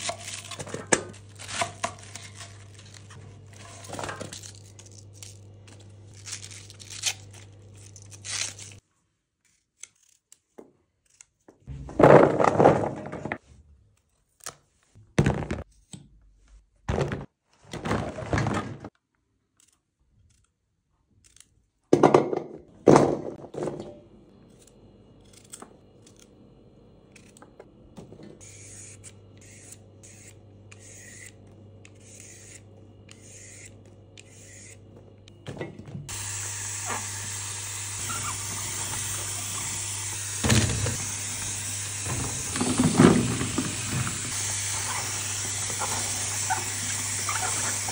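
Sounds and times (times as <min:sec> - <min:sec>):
cabbage leaves tearing: 0:00.0 - 0:08.8
peeler scraping carrot: 0:09.4 - 0:11.4, 0:28.4 - 0:34.9, 0:37.9 - 0:47.9.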